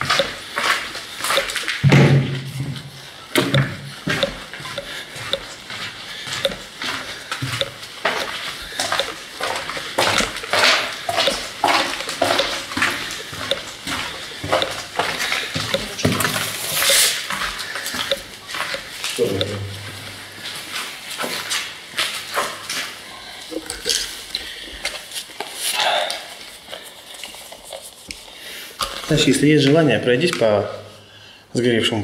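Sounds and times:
footsteps on gritty concrete: 0:00.0 - 0:01.8, 0:04.0 - 0:19.3.

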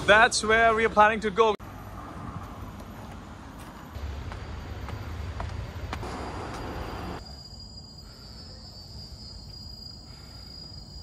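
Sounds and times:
high-pitched insect drone: 0:06.8 - 0:11.0.

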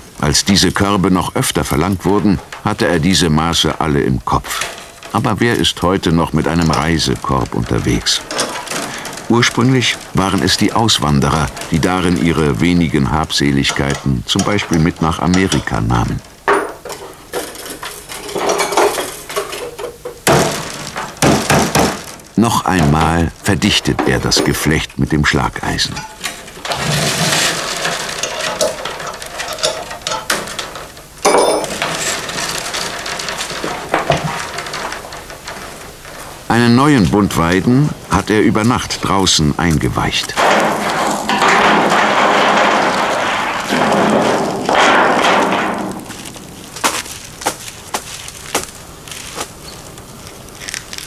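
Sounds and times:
willow rods clicking and rustling: 0:00.0 - 0:25.1, 0:25.9 - 0:51.0
bundle knocking on stone paving: 0:19.8 - 0:23.3, 0:40.3 - 0:49.6.

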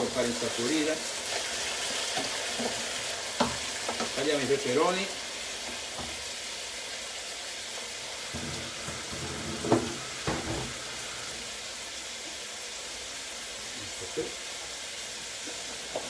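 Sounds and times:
vegetables sizzling in oil: 0:00.0 - 0:16.0.

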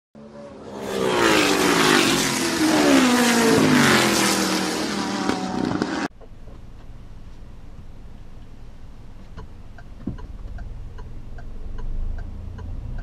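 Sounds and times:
car engine passing by: 0:00.2 - 0:06.1
low car cabin hum: 0:06.1 - 0:13.0.

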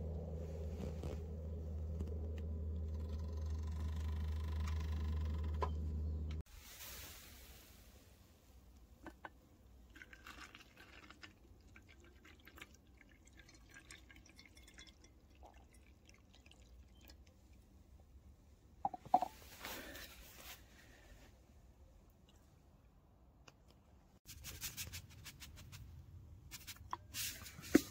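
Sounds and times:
liquid trickling and dripping: 0:09.9 - 0:17.6.

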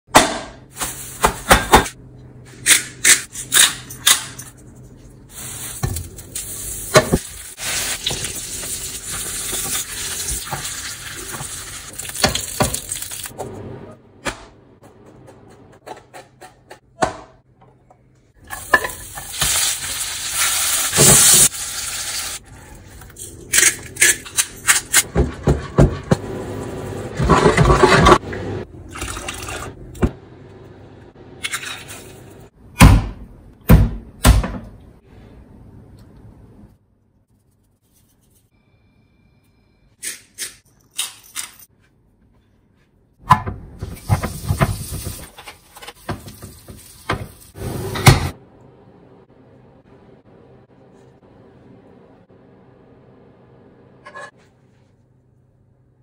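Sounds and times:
hot pan sizzling: 0:05.3 - 0:13.3, 0:18.5 - 0:22.4.

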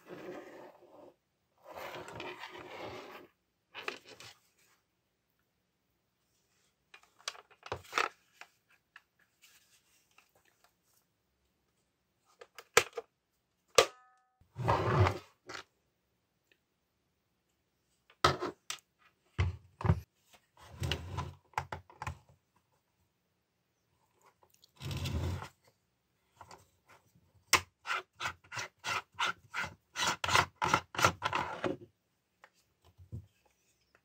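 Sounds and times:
rubbing and scraping: 0:27.8 - 0:31.8.

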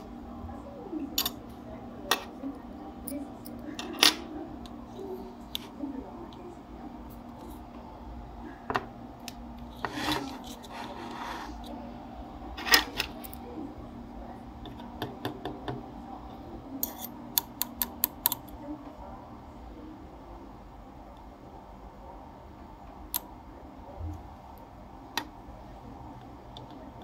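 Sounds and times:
rubbing and scraping: 0:09.8 - 0:11.6.

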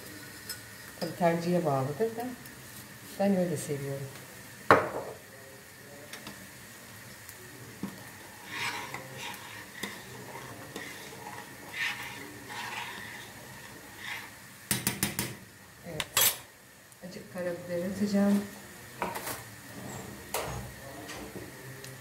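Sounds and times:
soup boiling in a pot: 0:03.8 - 0:22.0
utensil scraping a metal pot: 0:08.2 - 0:14.4.

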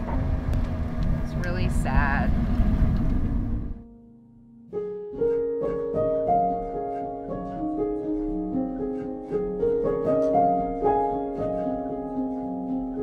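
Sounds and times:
piano melody: 0:03.4 - 0:13.0.

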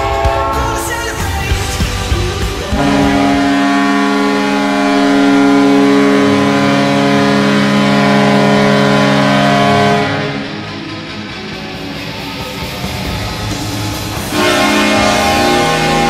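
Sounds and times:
multi-tone goal horn: 0:00.0 - 0:00.9, 0:02.7 - 0:10.7, 0:14.2 - 0:16.0.

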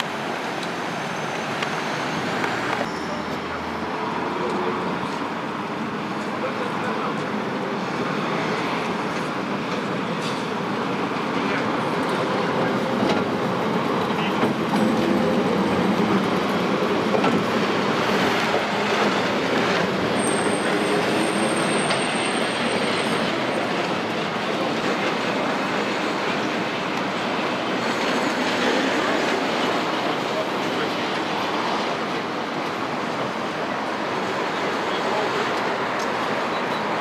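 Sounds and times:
tram wheels rumbling on rails: 0:00.0 - 0:37.0
high-pitched wheel squeal: 0:00.9 - 0:03.6, 0:20.1 - 0:23.6.

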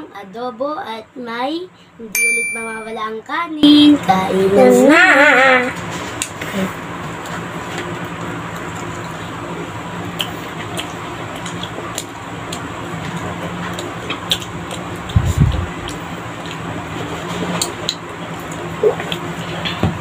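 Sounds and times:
steady background hum: 0:00.0 - 0:20.0
children chewing: 0:10.1 - 0:19.6.

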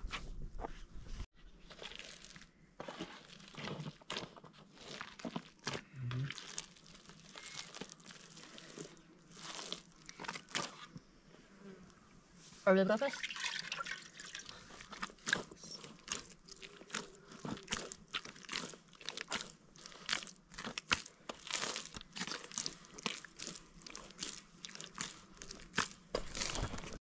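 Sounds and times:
hands kneading dough: 0:01.4 - 0:11.0, 0:14.0 - 0:27.0.

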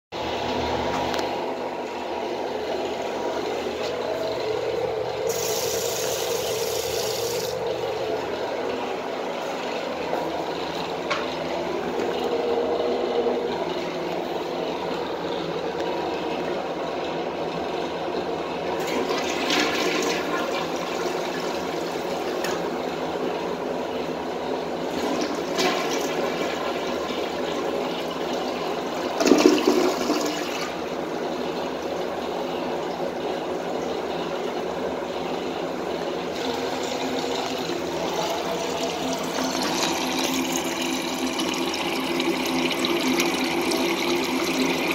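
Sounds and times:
toilet flushing: 0:00.2 - 0:44.9
toilet tank refilling hiss: 0:05.2 - 0:07.8, 0:29.1 - 0:30.8, 0:36.2 - 0:44.9.

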